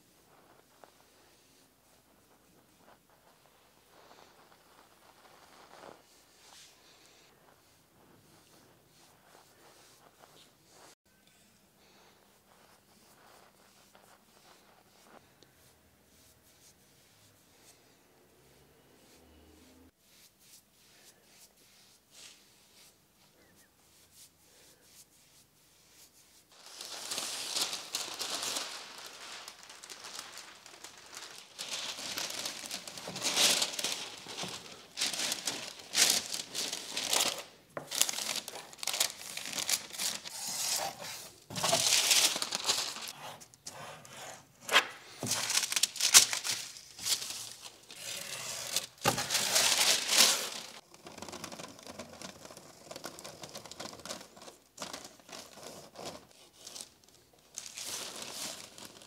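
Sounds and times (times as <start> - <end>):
paper rustling and crinkling: 0.0 - 11.0, 26.5 - 43.2, 44.7 - 59.0.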